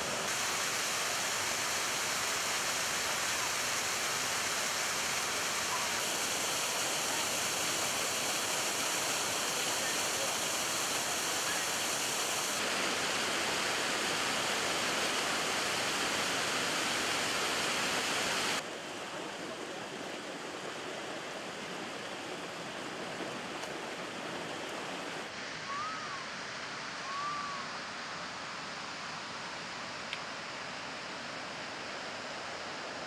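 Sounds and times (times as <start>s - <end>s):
waterfall rushing: 0.0s - 26.2s.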